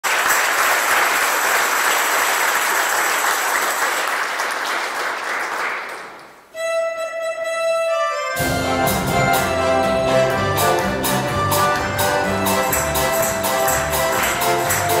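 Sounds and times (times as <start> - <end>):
congregation applauding: 0.0 - 6.5, 10.2 - 15.0
held instrument note: 6.5 - 15.0
band with bass and percussion: 8.4 - 15.0.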